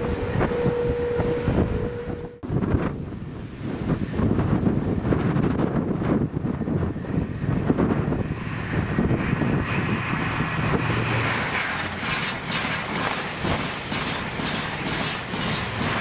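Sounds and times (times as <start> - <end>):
train rushing past: 0.0 - 16.0
wind buffeting microphone: 0.0 - 16.0
train wheels clattering on rails: 9.3 - 16.0.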